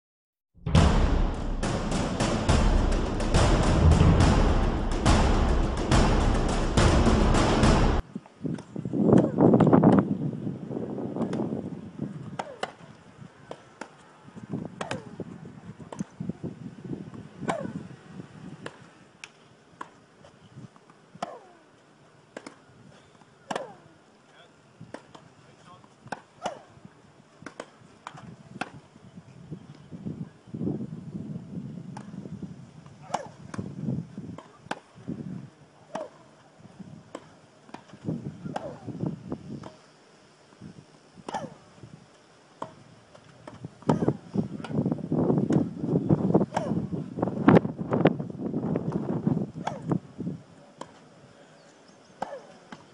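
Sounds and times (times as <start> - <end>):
rackets striking tennis ball: 14.8 - 15.1, 20.8 - 21.6, 22.3 - 22.6, 23.2 - 23.8, 24.9 - 26.7, 27.4 - 28.8, 33.0 - 33.7, 34.3 - 34.9, 35.9 - 36.2, 37.1 - 38.9, 41.3 - 41.6, 42.6 - 45.7, 46.5 - 46.8, 48.9 - 50.0, 52.2 - 52.8.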